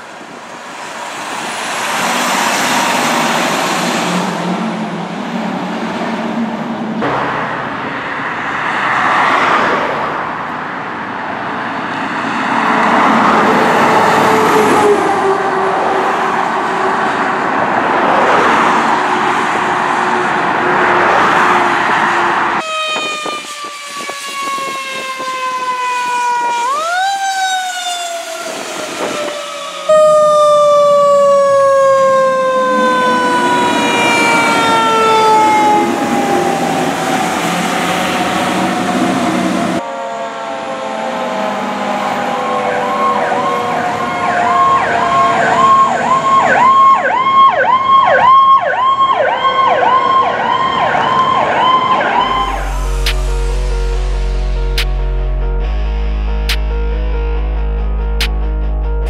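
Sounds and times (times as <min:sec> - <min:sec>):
passing vehicles road noise: 0:00.0 - 0:55.7
fire truck sirens wailing: 0:00.0 - 0:56.6
electronic siren yelp: 0:22.6 - 0:37.7, 0:39.5 - 0:54.2.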